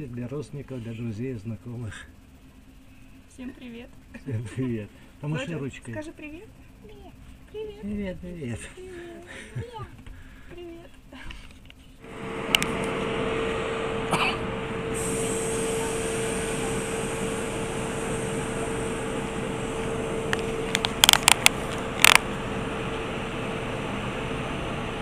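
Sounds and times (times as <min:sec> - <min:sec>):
steady hum: 0:00.0 - 0:25.0
steady rush of noise: 0:12.0 - 0:23.6
sharp clicks: 0:20.3 - 0:22.2.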